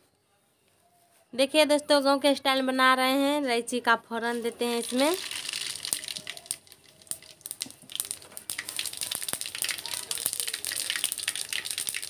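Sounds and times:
spices sizzling in hot oil: 0:04.8 - 0:12.0.

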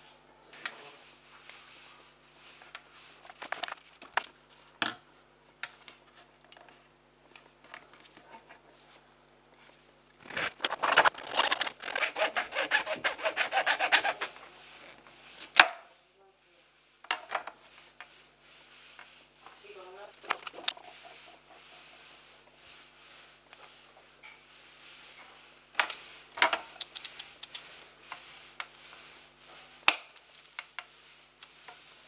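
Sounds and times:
hacksaw sawing plastic: 0:10.2 - 0:14.4.

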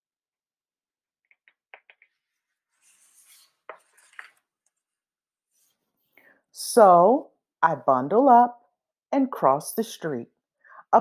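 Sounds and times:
book page turning: 0:02.0 - 0:05.0.

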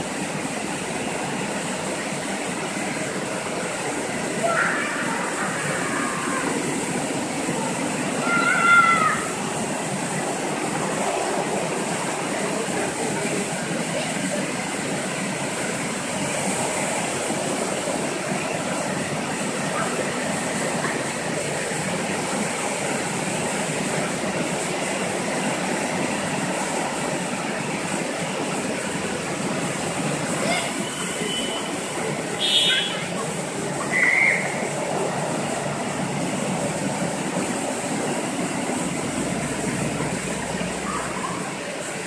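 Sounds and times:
car wash brushes and water spray: 0:00.0 - 0:42.0.

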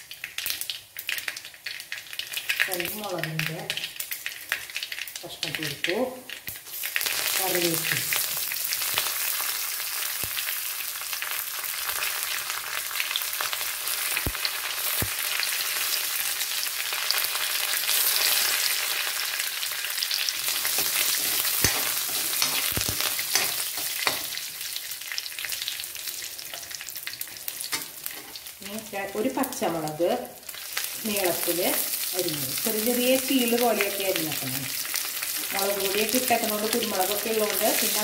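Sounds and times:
spices sizzling in hot oil: 0:00.0 - 0:38.0
steel ladle stirring pan: 0:20.4 - 0:24.5, 0:26.4 - 0:28.5.

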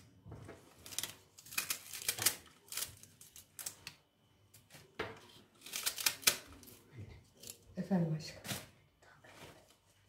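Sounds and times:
spinach stems snapping: 0:00.9 - 0:04.0, 0:05.6 - 0:06.5.

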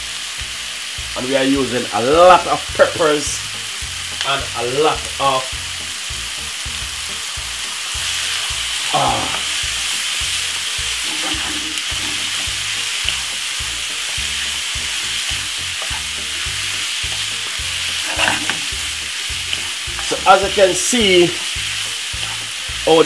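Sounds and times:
food sizzling in frying pan: 0:00.0 - 0:23.0
wooden spatula stirring: 0:11.0 - 0:12.6, 0:14.4 - 0:22.5.

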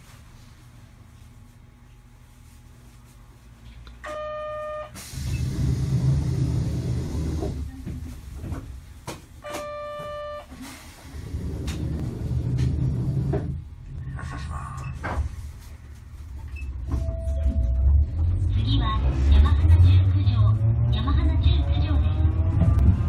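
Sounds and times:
streetcar rumble: 0:05.0 - 0:09.4, 0:10.5 - 0:23.0.

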